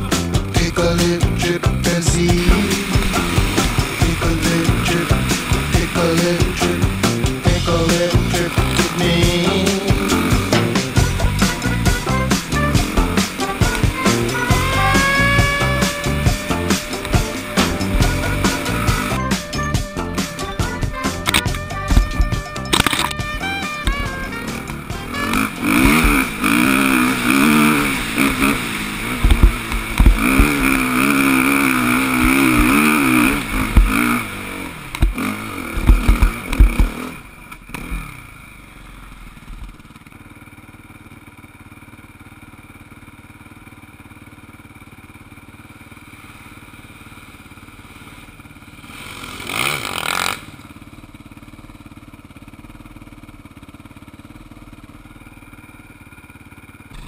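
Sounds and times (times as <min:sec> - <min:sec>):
dirt bike engine revving: 0:00.0 - 0:57.0
knocks and thuds from bumps: 0:20.6 - 0:22.6, 0:29.2 - 0:30.7, 0:33.7 - 0:34.0, 0:35.0 - 0:35.2, 0:35.8 - 0:37.0.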